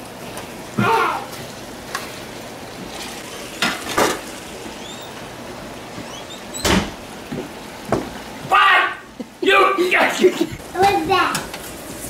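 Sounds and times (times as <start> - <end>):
food sizzling in a pan: 0.0 - 8.4, 10.5 - 12.0
kitchen clatter: 3.0 - 4.5
pans clunking: 3.2 - 5.1.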